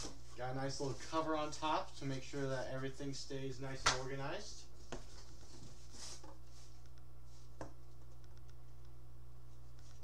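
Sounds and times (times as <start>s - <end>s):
low electrical hum: 0.0s - 10.0s
click: 8.2s - 9.0s.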